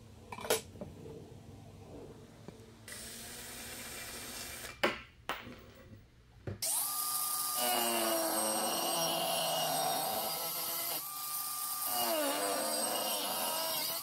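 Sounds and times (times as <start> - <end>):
angle grinder cutting metal: 6.6 - 14.0.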